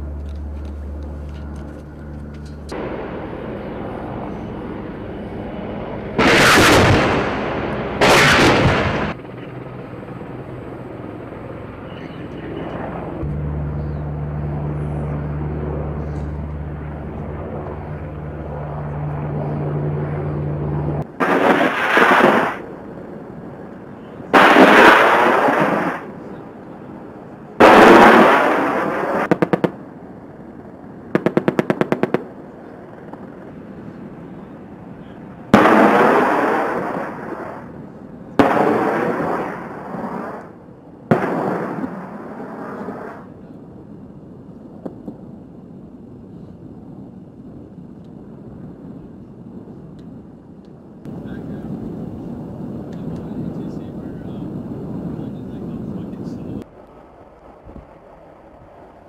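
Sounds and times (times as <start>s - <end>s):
helicopter rotor hum: 0.0s - 21.6s, 51.1s - 56.6s
rapid cannon fire: 6.2s - 9.2s, 21.2s - 22.7s, 24.3s - 26.1s, 27.6s - 29.8s, 31.1s - 32.4s, 35.5s - 37.7s, 38.4s - 40.4s, 41.1s - 42.8s
rocket blasts: 6.2s - 9.2s, 20.7s - 43.4s.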